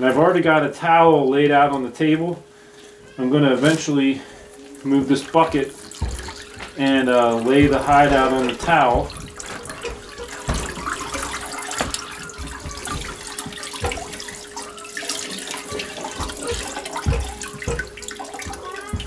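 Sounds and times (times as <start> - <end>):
water splashing into bucket: 5.0 - 19.0
knocks: 7.5 - 14.1.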